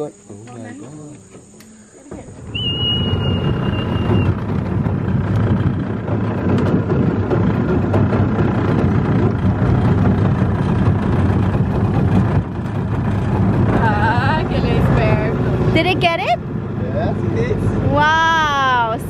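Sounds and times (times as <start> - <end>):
outboard motor running: 0.0 - 19.0
water rushing past hull: 0.0 - 19.0
high steady whistle: 2.5 - 4.4.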